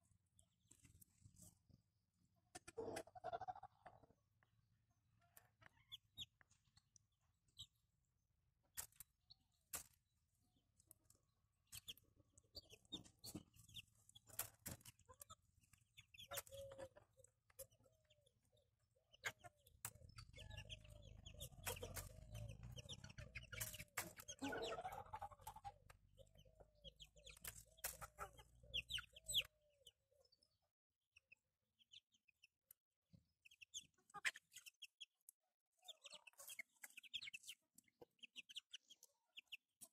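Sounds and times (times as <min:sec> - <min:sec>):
chickens clucking: 0:00.6 - 0:07.8, 0:11.0 - 0:30.5, 0:33.4 - 0:39.9.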